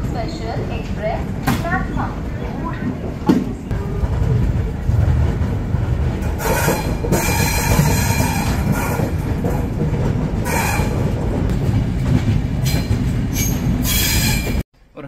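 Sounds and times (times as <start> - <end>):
train wheels rumbling on rails: 0.0 - 14.6
wheels screeching: 6.2 - 9.7, 10.4 - 11.3, 12.6 - 14.6.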